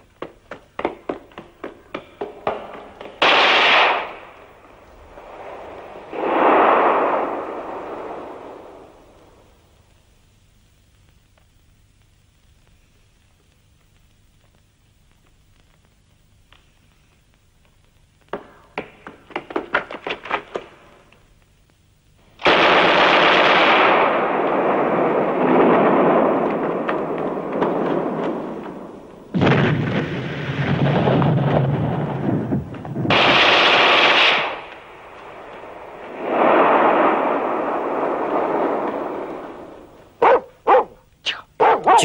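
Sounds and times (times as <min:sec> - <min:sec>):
shell explosions rumbling: 0:00.0 - 0:40.9
dog barking: 0:40.2 - 0:41.0, 0:41.6 - 0:42.0.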